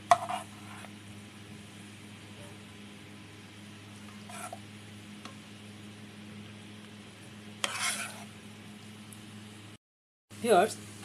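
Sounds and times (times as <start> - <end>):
low electrical hum: 0.0 - 11.0
ladle scraping: 4.1 - 4.6, 7.6 - 8.3.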